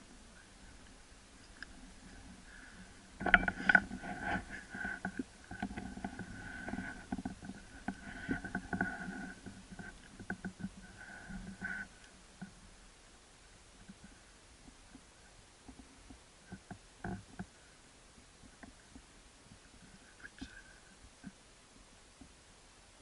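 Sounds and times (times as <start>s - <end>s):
faint steady whine: 0.0s - 23.0s
knocks and rustling at microphone: 1.7s - 12.6s, 13.8s - 17.7s.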